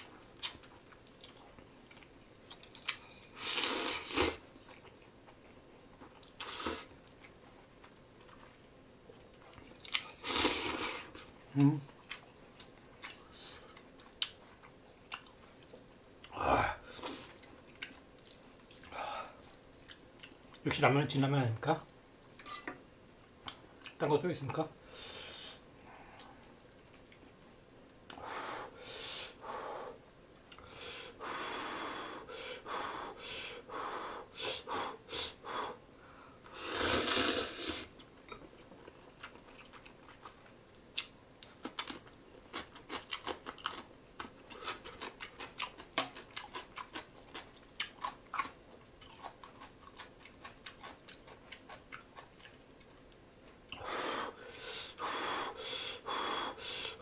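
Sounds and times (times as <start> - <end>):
person slurping noodles: 3.4 - 4.4, 6.4 - 6.9, 10.2 - 11.1, 36.5 - 38.0
chewing clicks: 39.2 - 53.8.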